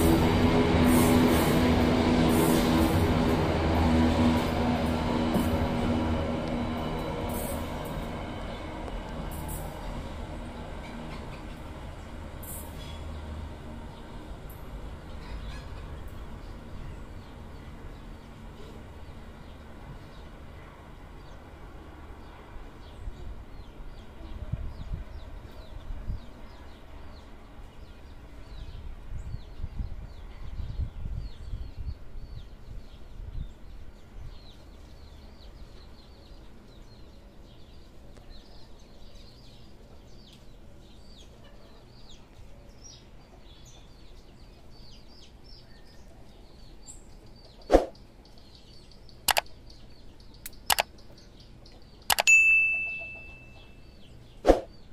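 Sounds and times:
freight train rumble: 0.0s - 48.2s
small birds chirping: 13.9s - 54.9s
sharp clicks: 49.3s - 49.5s, 50.4s - 51.0s, 52.0s - 52.3s
ringing ding: 52.2s - 53.8s.

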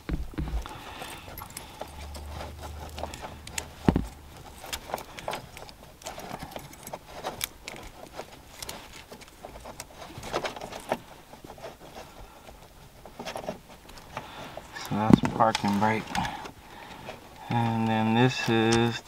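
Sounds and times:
plastic connectors clicking and rattling: 0.4s - 11.0s.

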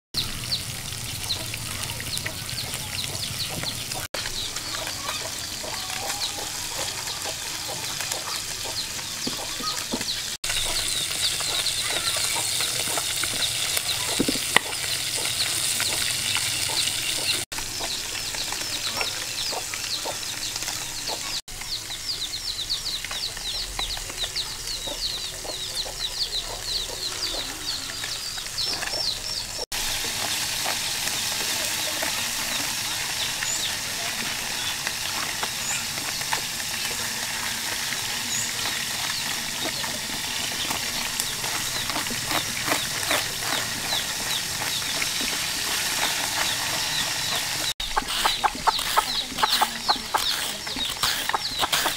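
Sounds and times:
chickens clucking: 0.2s - 51.9s
chicks peeping: 0.2s - 51.9s
knife cracking through rind: 41.5s - 43.7s, 47.9s - 51.9s
knife tapping and scraping pumpkin: 47.9s - 51.9s.

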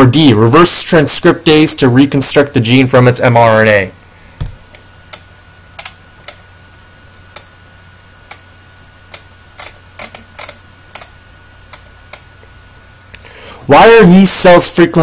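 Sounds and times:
faint steady hum: 0.0s - 15.0s
keyboard and mouse clicks: 5.8s - 6.4s, 9.1s - 11.1s.

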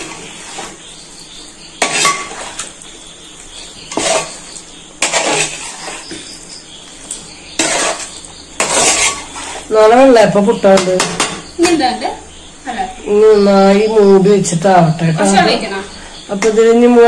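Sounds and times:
metal spoon scraping a pot: 0.0s - 0.9s, 1.8s - 2.8s, 3.8s - 6.4s, 7.1s - 9.7s.

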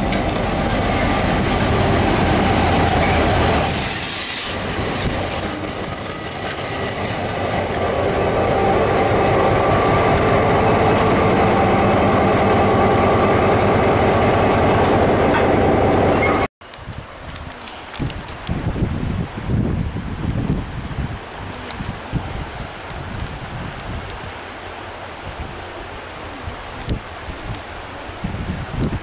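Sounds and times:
diesel locomotive engine running: 0.0s - 16.5s
short burst of hissing: 3.6s - 5.3s.

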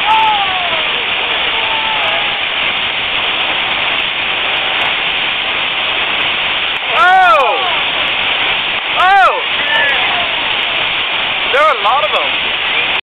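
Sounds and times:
voice-like exclamation: 0.0s - 2.5s, 6.9s - 8.0s
water and wind rushing: 0.0s - 13.0s.

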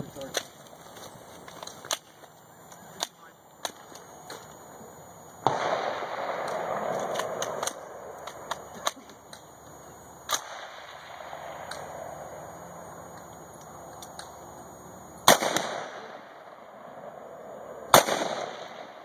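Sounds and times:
rifle shots: 5.4s - 9.0s, 10.3s - 12.4s, 15.2s - 19.0s.

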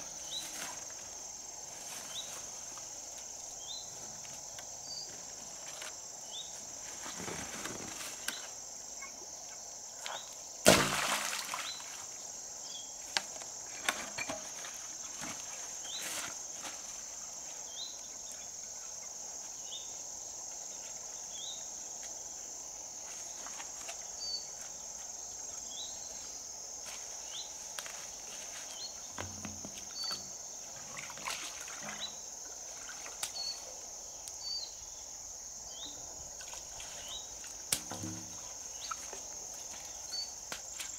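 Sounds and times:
high insect drone: 0.0s - 40.9s
short insect chirps: 7.6s - 13.4s, 27.2s - 40.9s.

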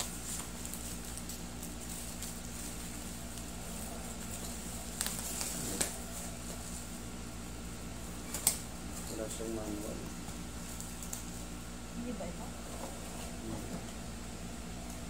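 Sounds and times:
bubble wrap crinkling: 0.0s - 11.6s
low room hum: 0.0s - 15.0s.

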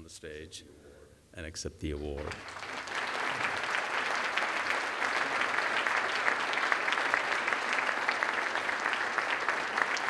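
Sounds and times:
audience applauding: 2.2s - 10.0s.

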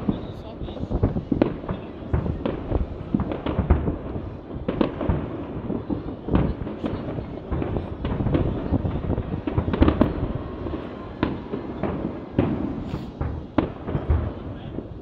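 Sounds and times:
firework shells bursting: 11.2s - 15.0s.

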